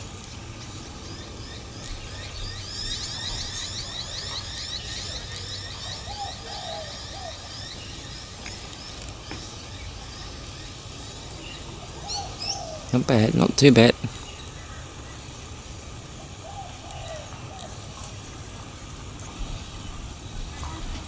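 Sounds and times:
low outdoor background noise: 0:00.0 - 0:21.0
bird trilling chirps: 0:00.3 - 0:10.8.

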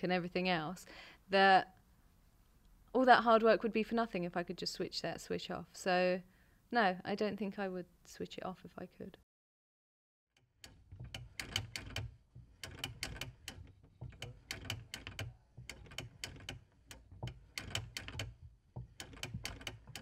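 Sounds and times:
mechanical clacking: 0:10.5 - 0:20.0.

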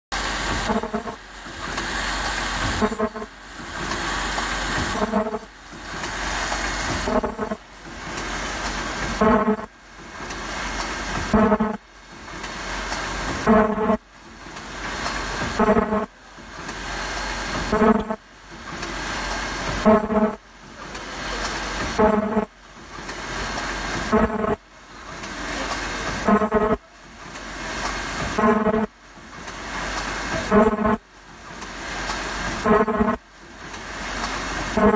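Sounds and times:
welding machine hiss: 0:00.2 - 0:20.4, 0:21.0 - 0:34.9
short buzzing tone: 0:00.6 - 0:01.2, 0:02.8 - 0:03.3, 0:04.9 - 0:05.5, 0:07.0 - 0:07.6, 0:09.2 - 0:09.7, 0:11.3 - 0:11.8, 0:26.3 - 0:26.8.

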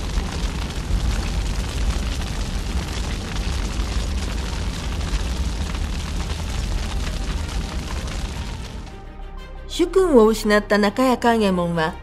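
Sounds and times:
deep rumbling roar with crackling: 0:00.0 - 0:09.0.

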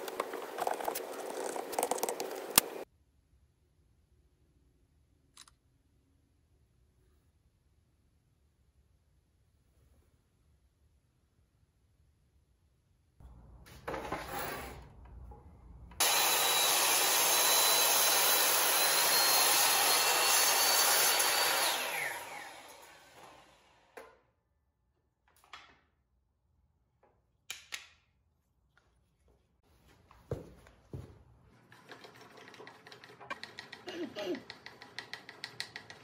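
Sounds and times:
miter saw cutting wood: 0:16.0 - 0:24.0.

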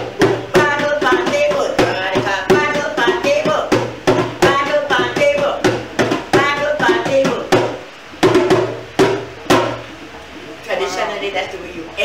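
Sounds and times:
hand drum: 0:00.0 - 0:09.9
woman singing: 0:00.5 - 0:03.7, 0:04.4 - 0:05.7, 0:06.3 - 0:07.5.

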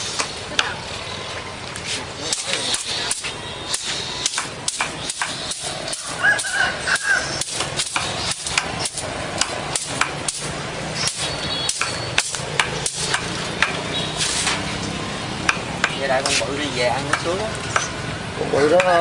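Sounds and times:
cleaver chopping on wooden block: 0:04.3 - 0:10.3, 0:11.1 - 0:13.8, 0:17.0 - 0:18.0.

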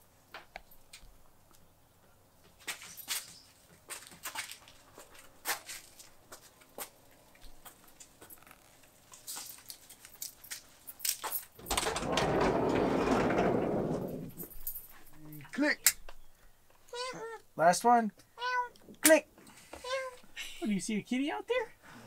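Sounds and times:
footsteps on concrete: 0:02.5 - 0:08.4
van sliding door rolling open: 0:11.6 - 0:14.6.

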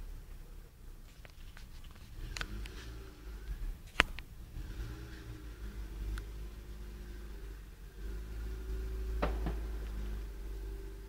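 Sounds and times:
distant road traffic rumble: 0:00.0 - 0:11.0.

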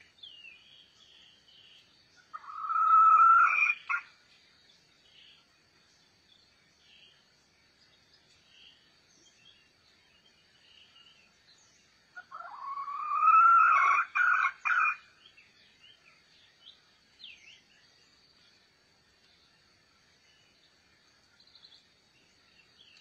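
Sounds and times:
faint bird chirps: 0:00.0 - 0:23.0
rooster crowing: 0:02.4 - 0:04.0, 0:12.2 - 0:15.0.

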